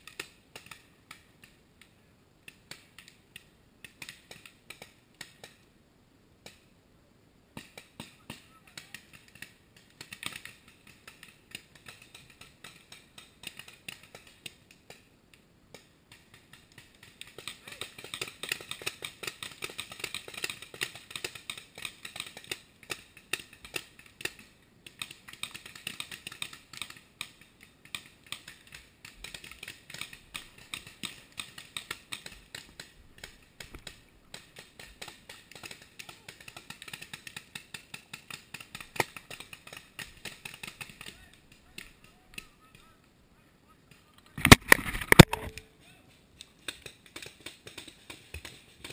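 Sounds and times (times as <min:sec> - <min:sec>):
paintball markers firing: 0:15.7 - 0:43.0, 0:46.4 - 0:48.9.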